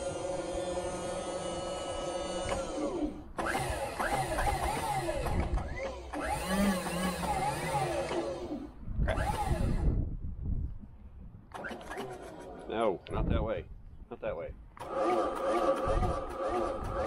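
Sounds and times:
mechanical hum winding down: 0.0 - 10.2.

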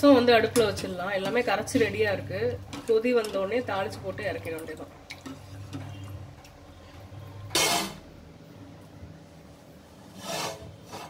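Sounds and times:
low steady hum: 0.0 - 10.1
metal pot scraping: 5.2 - 8.1, 10.1 - 11.0.

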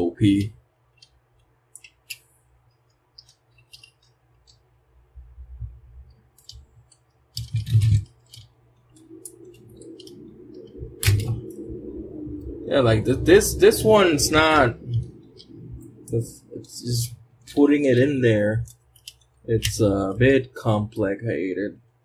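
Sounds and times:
plastic toy clicks and clatter: 0.3 - 2.2, 2.8 - 4.7, 6.3 - 9.4, 18.6 - 19.8.

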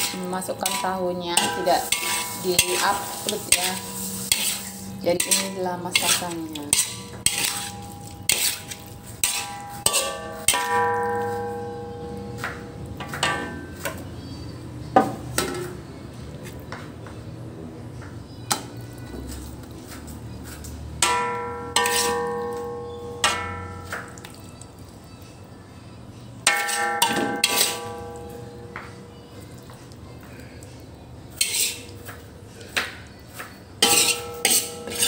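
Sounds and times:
spatula knocking pan rim: 0.0 - 11.4
metal spatula stirring in pan: 0.0 - 13.6, 19.2 - 24.4, 26.4 - 28.9, 31.3 - 32.8, 33.8 - 35.0.

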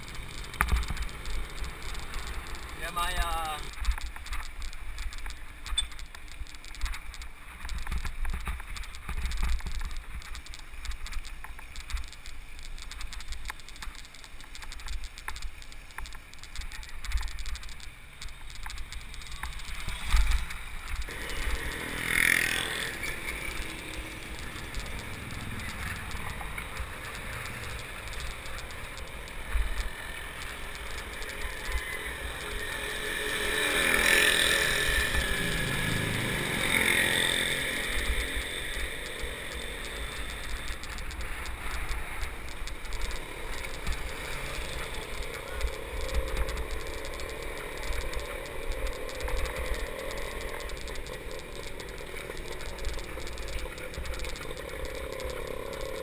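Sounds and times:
bicycle knocks and rattles: 0.0 - 22.3
road and traffic noise: 0.0 - 56.0.

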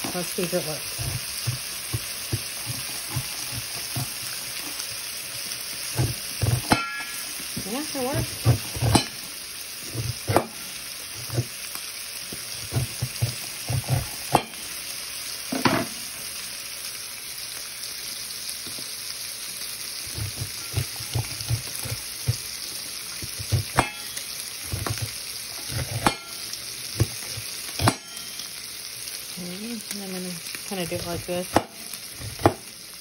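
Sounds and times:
bacon sizzling in a skillet: 0.0 - 33.0
knife scraping corn kernels: 0.9 - 4.8, 12.6 - 14.6, 20.0 - 26.4.

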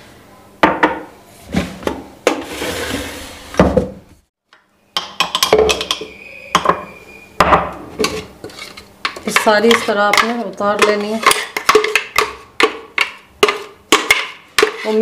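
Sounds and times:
kitchenware knocking and clattering: 0.6 - 1.1, 5.0 - 8.3, 9.1 - 15.0
metal spoon scraping jars: 8.0 - 15.0.

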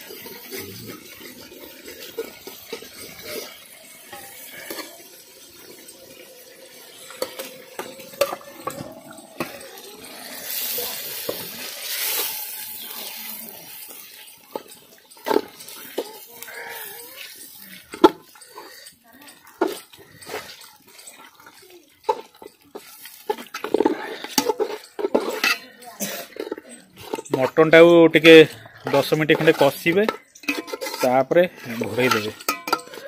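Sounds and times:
meat sizzling in oil: 0.0 - 25.6
spatula scraping and knocking pot: 0.0 - 33.0.

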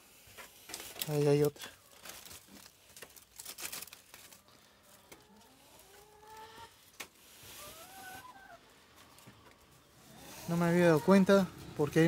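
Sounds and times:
dry leaves and twigs crackling: 0.6 - 7.7
hens calling: 4.4 - 12.0.

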